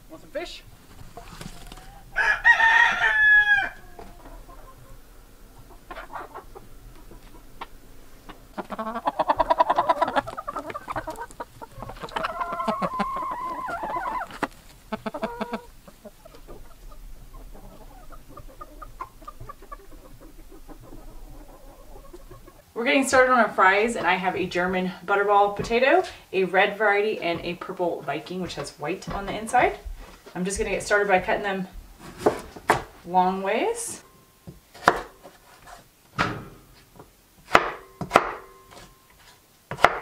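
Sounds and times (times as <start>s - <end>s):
chickens clucking and squawking: 0.0s - 32.0s.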